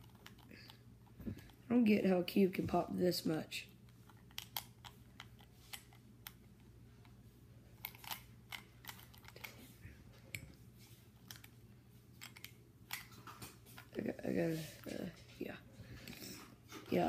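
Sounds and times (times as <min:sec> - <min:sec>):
plastic puzzle cube clicking: 0:04.1 - 0:06.4.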